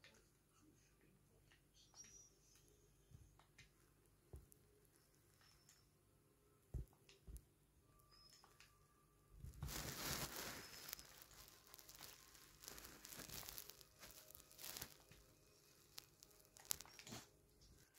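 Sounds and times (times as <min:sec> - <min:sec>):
fabric rustling and crinkling: 0:09.4 - 0:17.9.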